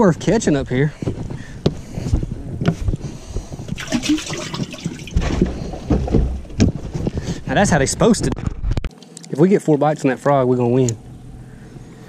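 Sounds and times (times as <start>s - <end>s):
water splashing and gurgling: 3.8s - 5.5s.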